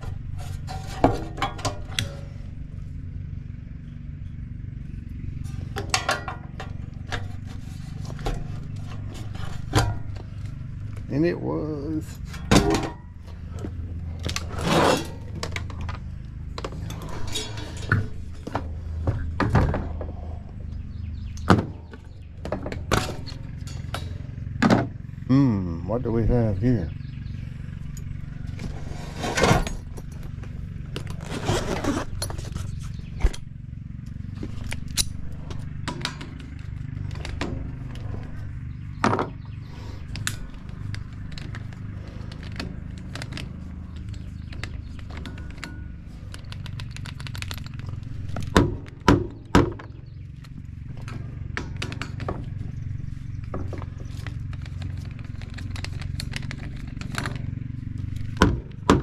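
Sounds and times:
steady low hum: 0.0s - 59.0s
tools and metal parts knocking: 5.5s - 10.5s, 21.1s - 24.9s, 34.3s - 59.0s.

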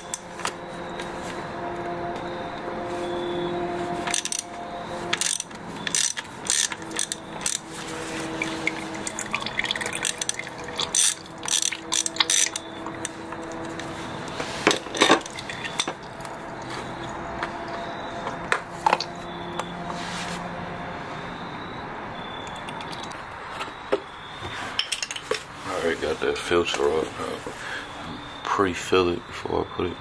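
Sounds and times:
hand ratchet clicking: 0.0s - 0.6s, 4.0s - 13.9s
steady hum: 0.0s - 22.9s.

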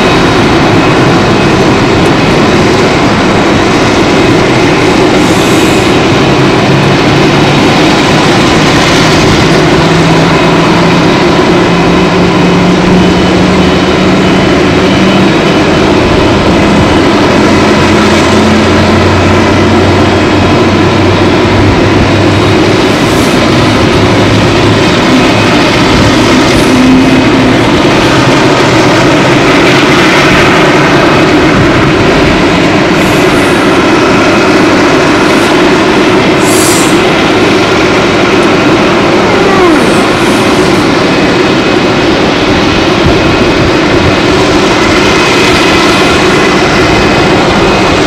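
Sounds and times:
jet engines roaring: 0.0s - 48.0s.

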